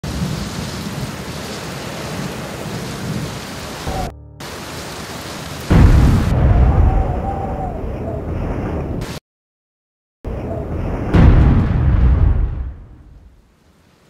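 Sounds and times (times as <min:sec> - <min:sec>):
rushing noise with low rumble: 0:00.0 - 0:07.7
loud deep boom: 0:05.7 - 0:07.8, 0:10.7 - 0:13.3.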